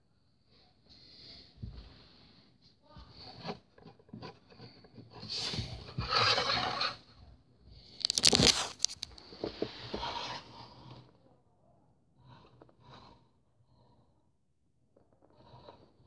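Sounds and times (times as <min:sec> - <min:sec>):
plastic crinkling: 0:07.9 - 0:09.2
plastic packaging rustling: 0:07.9 - 0:09.2.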